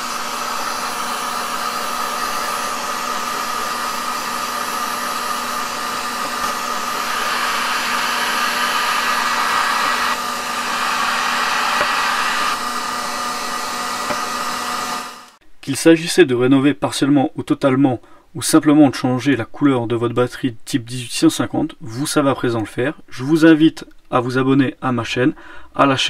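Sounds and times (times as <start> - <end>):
heat gun blowing air: 0.0 - 15.4.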